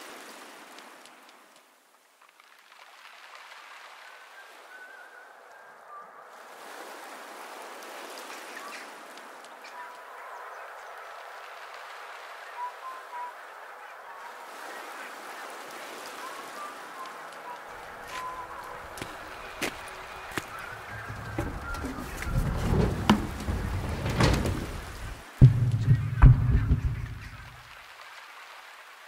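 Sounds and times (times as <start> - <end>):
birds calling: 12.4 - 27.8
water washing over shingle: 14.4 - 29.0.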